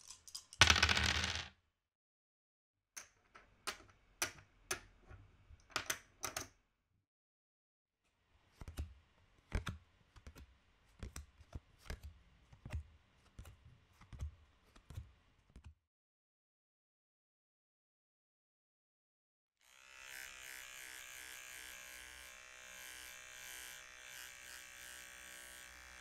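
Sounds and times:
poker chips clicking: 0:00.0 - 0:01.5.

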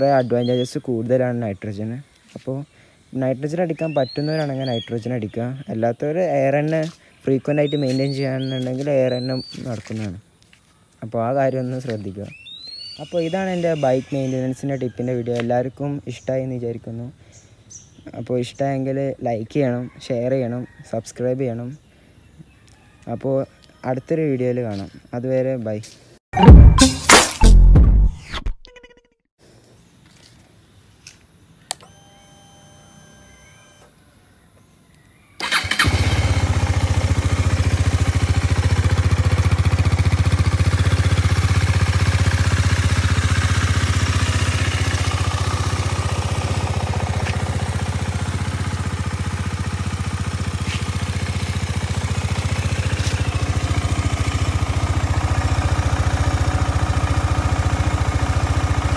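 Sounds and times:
motorcycle engine idling: 0:35.4 - 0:58.9.

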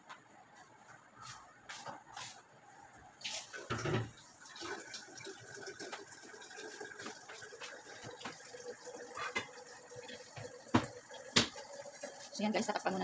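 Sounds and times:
pot of broth simmering: 0:03.5 - 0:13.0.

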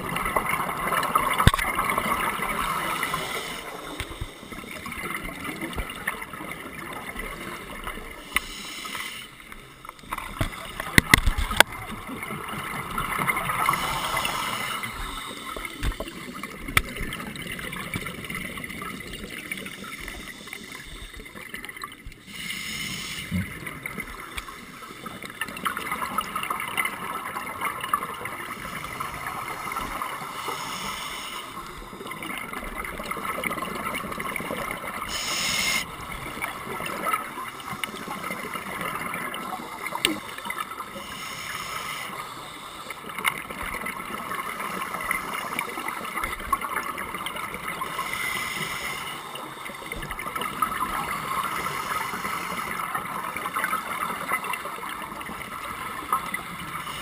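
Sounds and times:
gurgling bubbles: 0:00.0 - 0:08.2
regulator breathing hiss: 0:02.6 - 0:04.8, 0:08.2 - 0:09.6, 0:13.6 - 0:16.2, 0:22.2 - 0:23.6, 0:28.6 - 0:32.1, 0:35.0 - 0:36.0, 0:40.9 - 0:43.1, 0:47.8 - 0:50.1, 0:51.2 - 0:52.9.

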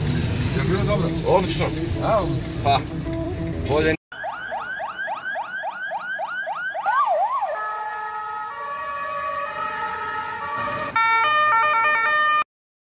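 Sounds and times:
electronic ambulance siren: 0:04.1 - 0:12.5.

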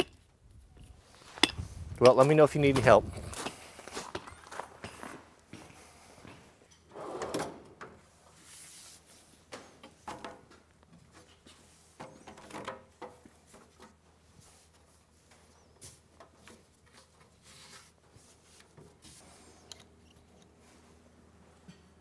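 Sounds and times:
rubber liner rustling and scraping: 0:13.4 - 0:19.5.

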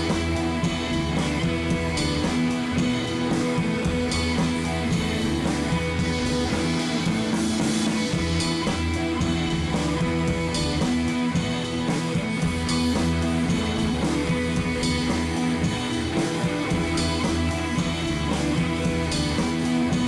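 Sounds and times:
rock music with guitar and drums: 0:00.0 - 0:20.0.

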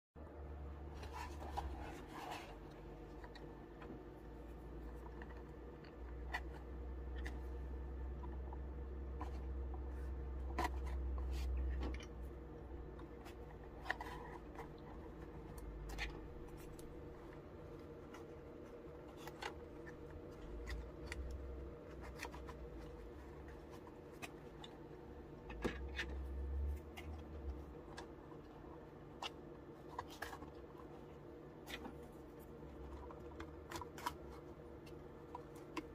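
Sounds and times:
steady low hum: 0:00.2 - 0:35.9.

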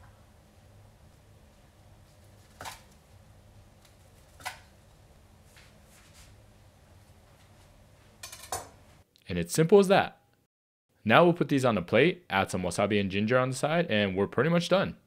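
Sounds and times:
faint low room hum: 0:00.0 - 0:10.4.

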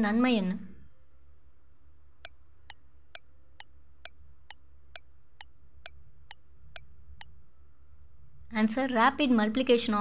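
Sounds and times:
ringing clock ticks: 0:02.2 - 0:07.4.

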